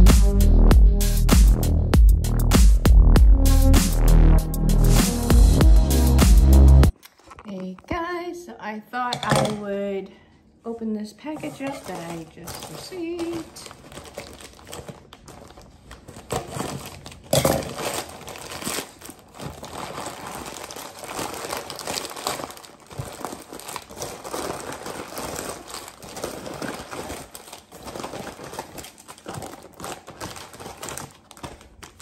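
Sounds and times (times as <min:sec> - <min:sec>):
plastic crinkling: 0:06.9 - 0:07.9, 0:11.1 - 0:32.0
scissors cutting plastic bag: 0:11.3 - 0:32.0
loud sharp plastic crackle: 0:11.4 - 0:32.0.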